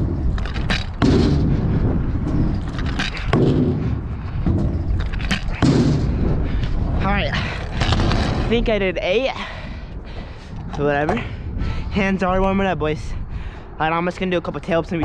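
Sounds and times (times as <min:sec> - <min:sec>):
scooter deck and wheels clacking: 0:00.0 - 0:01.5, 0:02.2 - 0:06.1
steady low rumble: 0:00.0 - 0:15.0.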